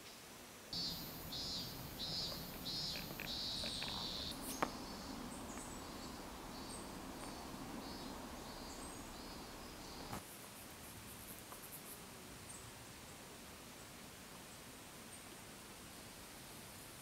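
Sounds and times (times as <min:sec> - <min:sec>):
bird trilling song: 0:00.8 - 0:10.2.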